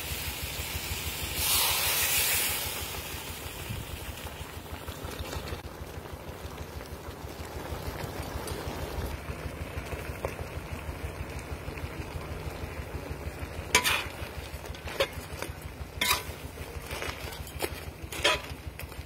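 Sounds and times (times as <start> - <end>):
sauce bubbling in wok: 0.0 - 19.0
sharp metal clank: 16.0 - 16.4.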